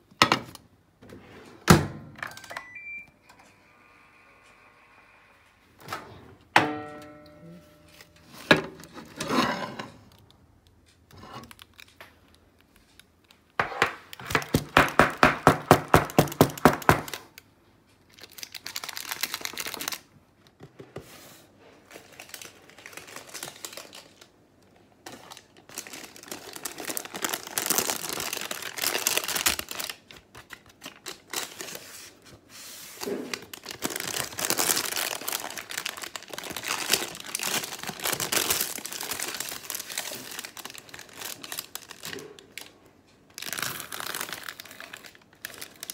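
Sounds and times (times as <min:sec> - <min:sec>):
baking paper crinkling and rustling: 0:18.0 - 0:45.9.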